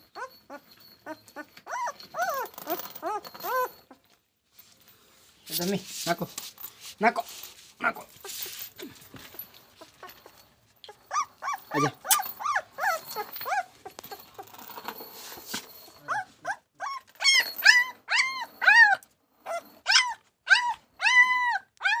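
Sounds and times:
puppy whining: 0:00.0 - 0:04.2, 0:08.0 - 0:14.6, 0:15.7 - 0:22.0
soft rustling: 0:01.0 - 0:16.6.

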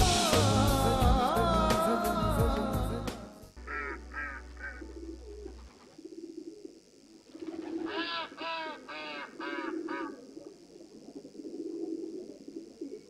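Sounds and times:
loud harsh bird calls: 0:03.6 - 0:05.0, 0:07.7 - 0:10.2
low warbling bird call: 0:03.6 - 0:06.6.

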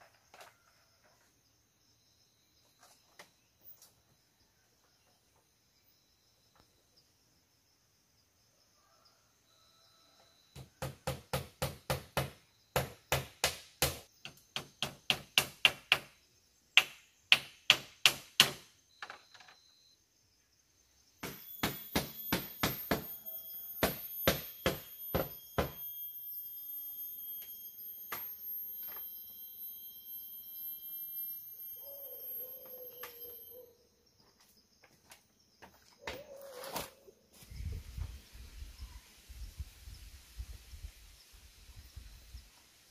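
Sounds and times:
hammering on bamboo: 0:10.6 - 0:16.2, 0:16.8 - 0:18.7, 0:21.2 - 0:25.9.

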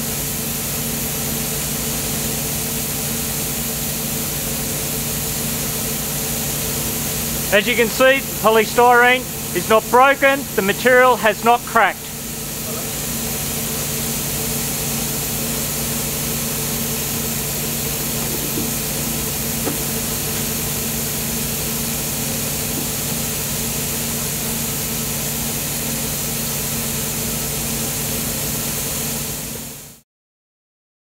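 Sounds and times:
machinery drone with hiss: 0:00.0 - 0:30.0.

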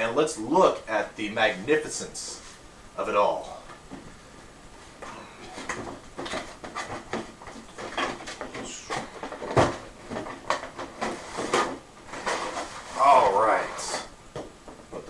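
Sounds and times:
box thump: 0:05.6 - 0:12.7
cardboard box rustling and scraping: 0:06.2 - 0:14.1.

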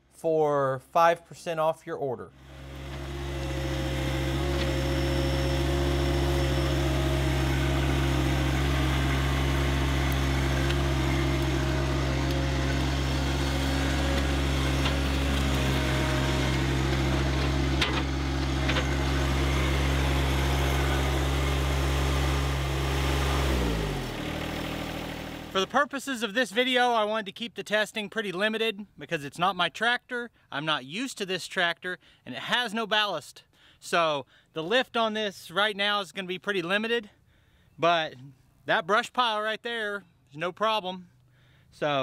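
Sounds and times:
tractor diesel engine running: 0:02.4 - 0:26.0.

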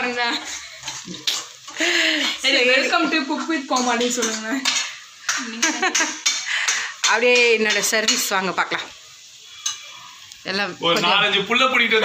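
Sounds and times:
metal pots and utensils clattering: 0:00.0 - 0:08.9, 0:09.5 - 0:10.1.

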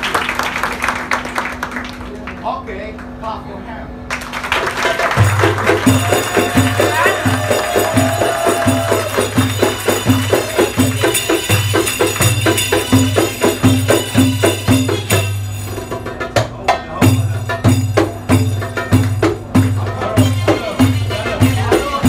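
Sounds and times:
frame drums beating: 0:04.6 - 0:22.0
tambourine jingles: 0:05.8 - 0:16.1.

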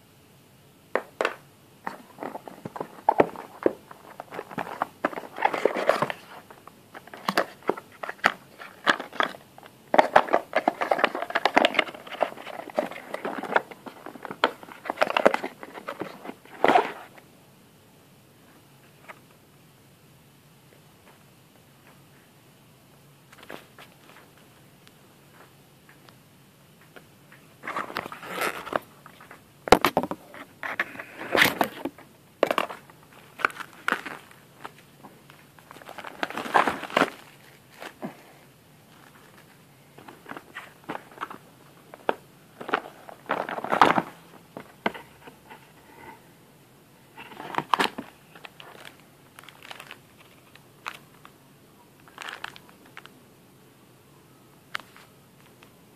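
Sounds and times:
cardboard rustling and scraping: 0:01.8 - 0:17.2, 0:27.6 - 0:34.9, 0:35.6 - 0:38.3, 0:38.9 - 0:46.2, 0:47.1 - 0:50.4.

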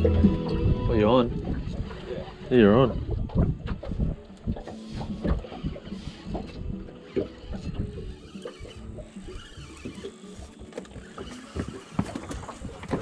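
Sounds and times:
fishing gear knocks and clicks: 0:09.8 - 0:13.0.

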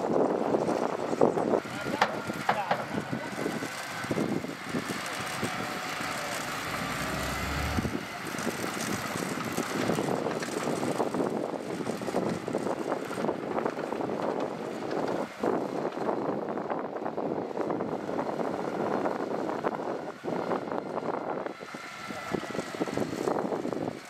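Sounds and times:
diesel machinery engine running: 0:00.1 - 0:24.0
rapid clatter of knocks: 0:02.0 - 0:02.9.

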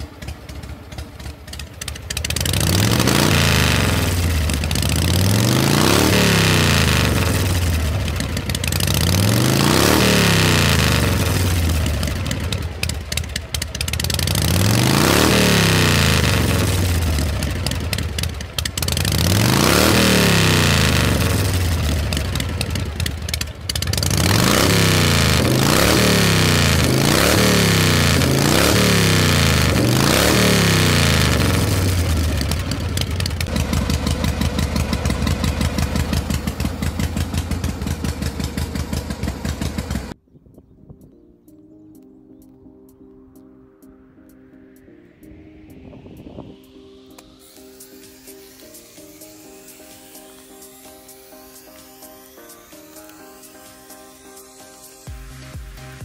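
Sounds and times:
engine revving: 0:00.0 - 0:40.2.

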